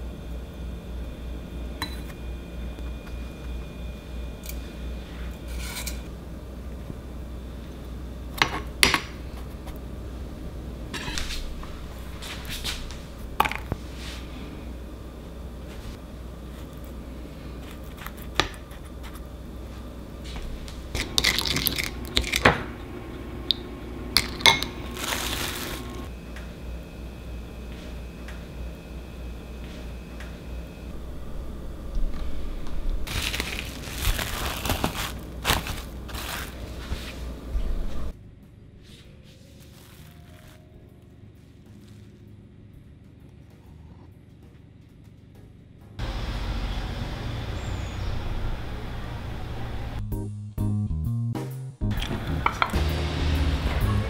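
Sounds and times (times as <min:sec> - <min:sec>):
cling film crinkling: 0:24.8 - 0:26.1, 0:33.0 - 0:37.2, 0:39.4 - 0:40.7.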